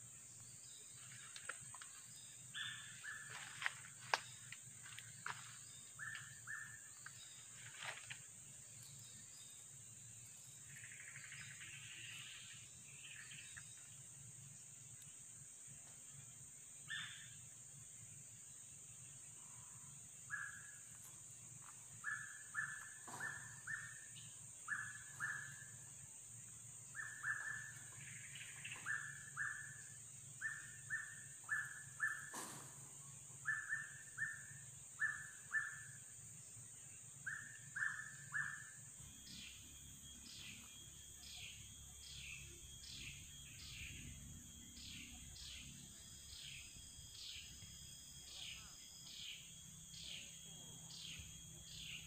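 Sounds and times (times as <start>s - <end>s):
high insect drone: 0.0s - 52.0s
bird falling calls: 22.0s - 24.1s
higher bird call: 22.0s - 25.7s.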